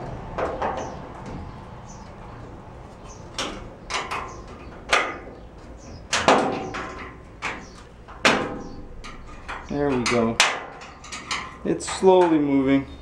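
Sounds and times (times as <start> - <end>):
wrench clanking on metal: 6.1 - 12.8.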